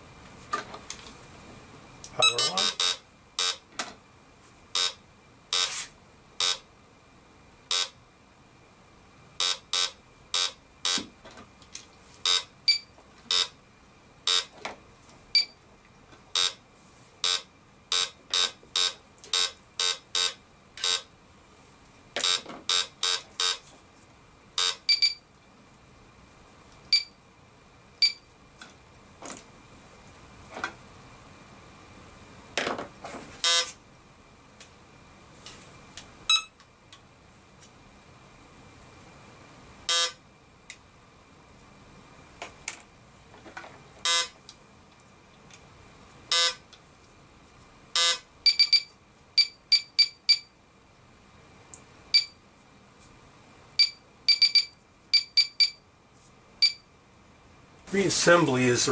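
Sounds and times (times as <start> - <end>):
metal detector beeping: 2.2 - 3.6, 4.8 - 5.0, 6.4 - 6.6, 7.7 - 7.9, 9.4 - 11.0, 12.3 - 13.5, 17.2 - 21.0, 24.6 - 25.2, 33.4 - 33.7, 36.3 - 36.6, 39.9 - 40.2, 44.1 - 44.3, 46.3 - 46.6, 48.0 - 50.5, 53.8 - 55.8, 56.6 - 56.8
metal detector low tones: 2.2 - 3.6.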